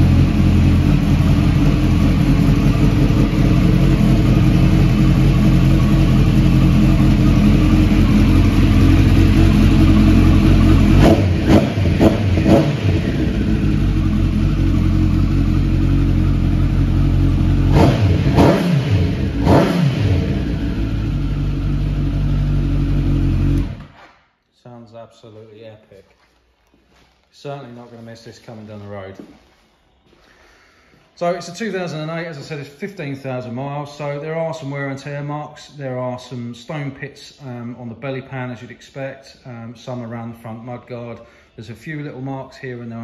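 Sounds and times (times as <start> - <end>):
motorcycle engine idling: 0.0 - 23.8
engine throttle blips: 0.0 - 23.9.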